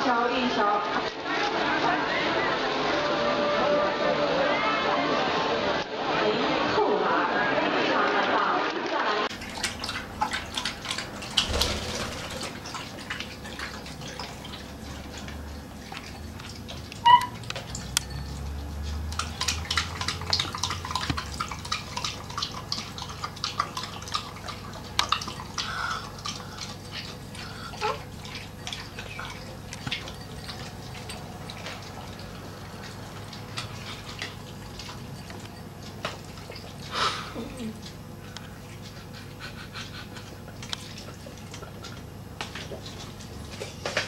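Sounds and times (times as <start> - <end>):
dog lapping from a glass: 12.5 - 36.9.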